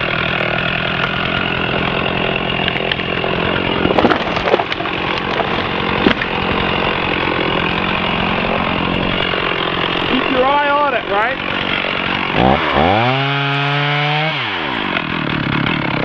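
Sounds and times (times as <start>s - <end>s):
chainsaw cutting wood: 0.0s - 16.0s
sharp knocks: 3.7s - 6.4s.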